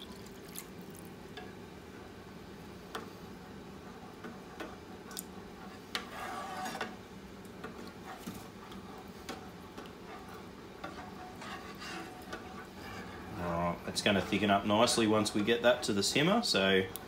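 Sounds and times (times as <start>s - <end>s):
utensil scraping enamel pan: 10.1s - 16.2s.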